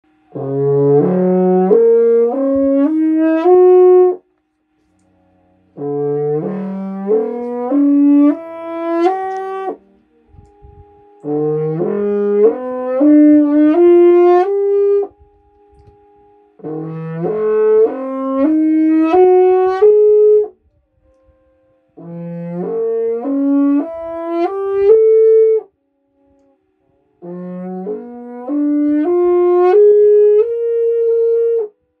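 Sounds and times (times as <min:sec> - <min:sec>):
french horn climbing note runs: 0:05.2 - 0:25.7.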